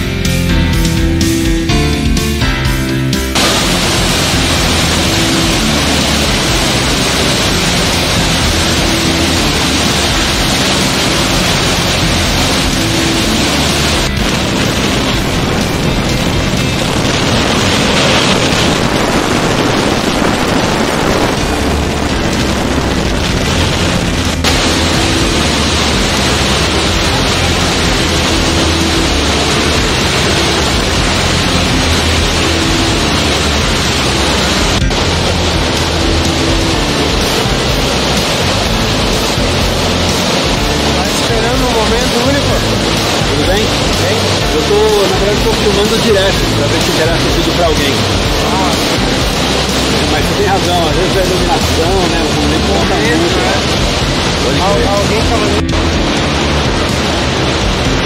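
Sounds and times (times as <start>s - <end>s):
waterfall crashing onto rocks: 3.2s - 58.0s.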